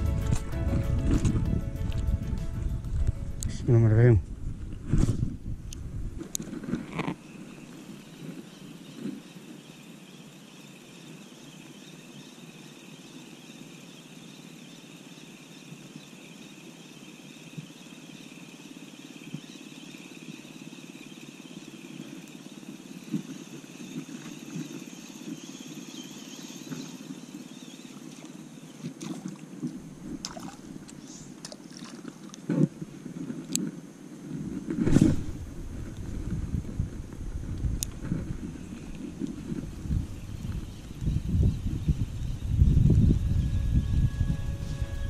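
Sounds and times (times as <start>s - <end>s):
wind: 0.0s - 45.0s
water: 6.2s - 33.7s
faint high hum: 33.9s - 45.0s.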